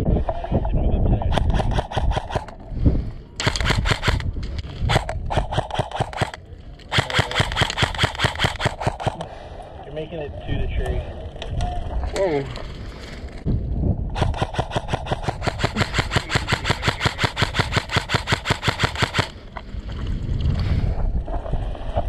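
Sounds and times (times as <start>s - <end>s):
airsoft rifle full-auto burst: 1.3s - 2.5s, 3.4s - 4.2s, 4.9s - 9.2s, 14.2s - 19.4s.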